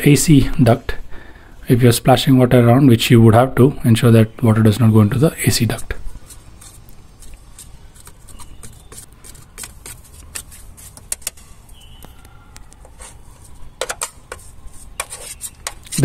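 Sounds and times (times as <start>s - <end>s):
hand tool scraping in metal tray: 12.9s - 16.0s.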